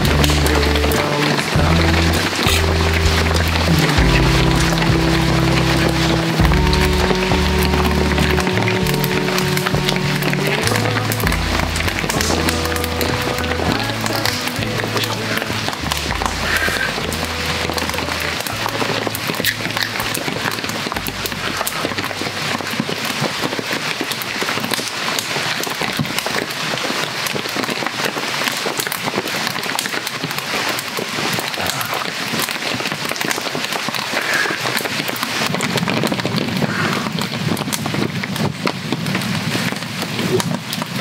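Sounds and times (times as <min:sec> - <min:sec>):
campfire crackling and popping: 0:00.0 - 0:41.0
steady rain falling: 0:00.0 - 0:41.0.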